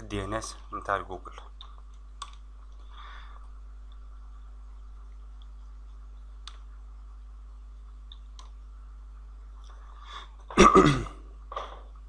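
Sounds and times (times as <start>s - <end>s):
low electrical hum: 0.0s - 12.0s
computer keyboard key clicks: 2.2s - 2.4s.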